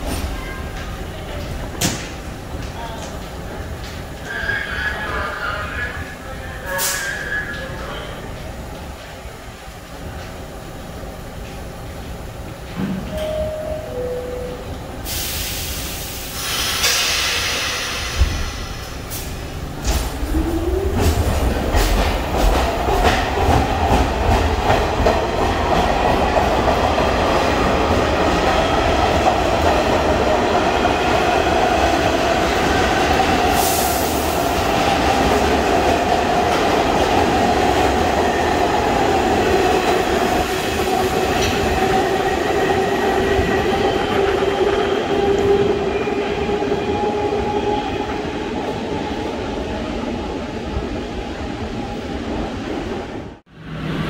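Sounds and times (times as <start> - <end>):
air hiss: 15.0 - 20.0.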